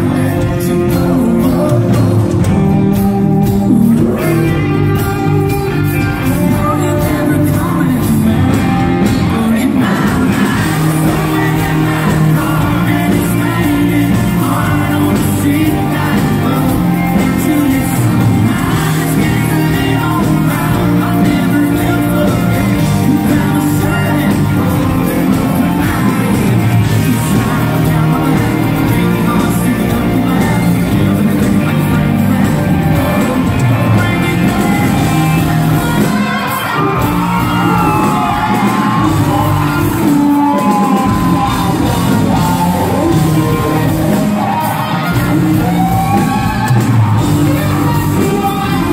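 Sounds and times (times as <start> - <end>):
bending electric guitar lead: 0.0 - 48.9
lead vocals: 0.0 - 48.9
rock band playing live: 0.0 - 48.9.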